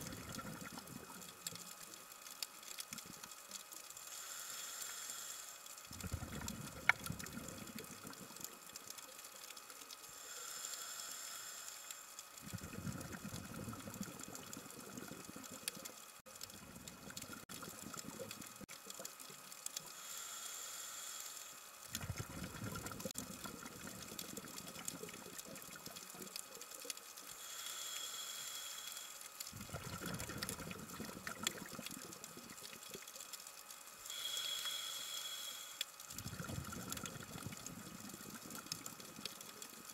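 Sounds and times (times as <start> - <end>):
exhaled bubbles rumbling: 0.0 - 1.2, 5.9 - 8.6, 12.4 - 19.1, 21.9 - 26.1, 29.5 - 33.0, 36.1 - 39.9
scuba regulator inhale hiss: 4.1 - 5.6, 10.1 - 12.0, 19.9 - 21.6, 27.3 - 29.2, 34.1 - 35.8.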